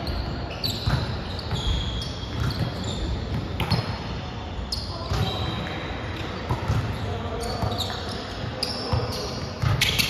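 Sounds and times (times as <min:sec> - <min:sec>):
players' voices echoing: 0:00.0 - 0:10.0
short high squeaks: 0:00.5 - 0:03.1.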